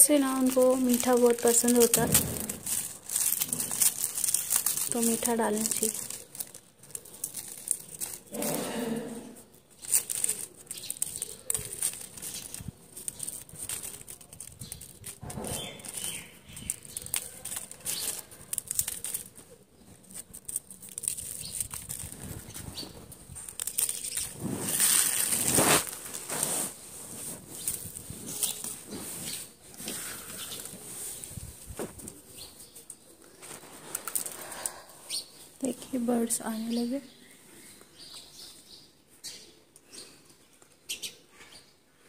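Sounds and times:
biscuits crumbled by hand: 0.0 - 8.4, 9.6 - 26.3, 32.9 - 34.8
plastic wrapper crinkling: 0.0 - 8.5, 9.5 - 34.8.

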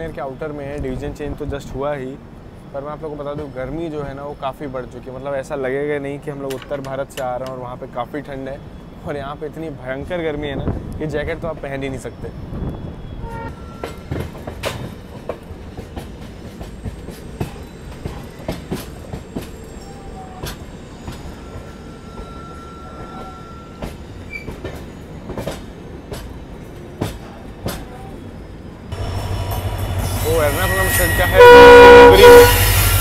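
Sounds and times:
train coaches rumbling: 0.0 - 33.0
faint squeal: 11.8 - 14.2, 19.2 - 24.6, 29.6 - 33.0.

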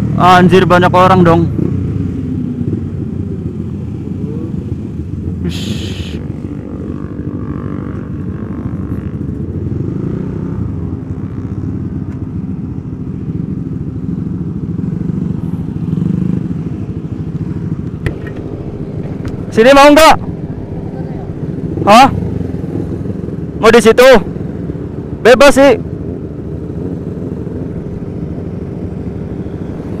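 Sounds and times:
motorcycle engine idling: 10.9 - 23.7.

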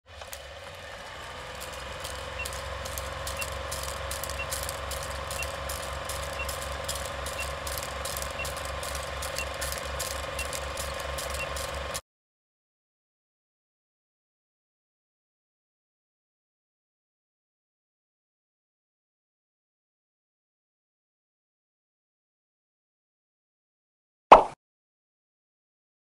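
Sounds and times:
film projector clicking rattle: 0.1 - 12.0
short beeps: 2.4 - 2.6, 6.3 - 6.7, 8.3 - 8.7, 9.3 - 9.6, 11.3 - 11.7.

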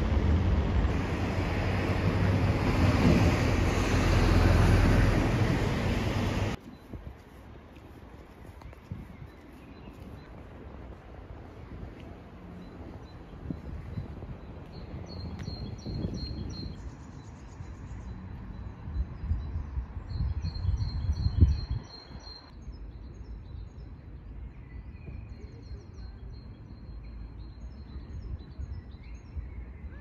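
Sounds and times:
small birds chirping: 12.0 - 30.0.

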